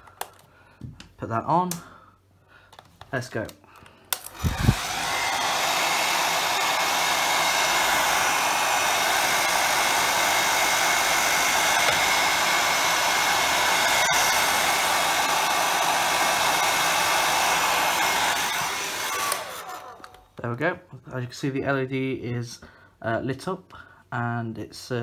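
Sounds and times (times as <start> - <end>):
hair dryer blowing: 4.1 - 20.3.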